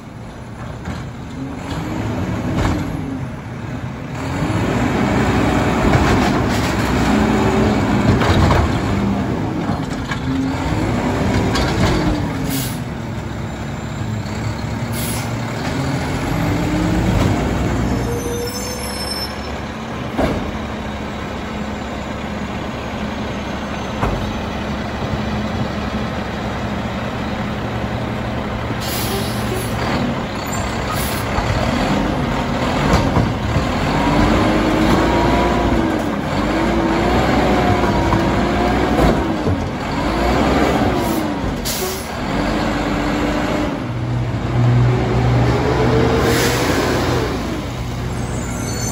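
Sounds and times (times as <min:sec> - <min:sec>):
garbage truck engine revving: 0:01.4 - 0:18.1, 0:19.5 - 0:48.9.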